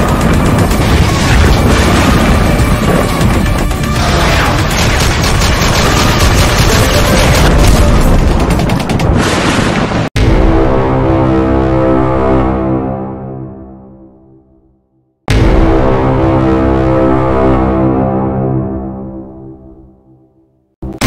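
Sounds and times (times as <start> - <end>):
loud dramatic music: 0.0 - 9.2, 10.2 - 14.4, 15.3 - 20.1
booms: 0.0 - 10.6
gunfire sound effects: 4.0 - 9.8.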